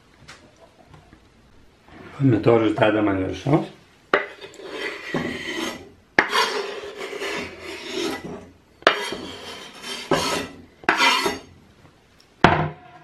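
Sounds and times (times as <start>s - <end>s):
knife scraping cutting board: 4.2s - 11.5s.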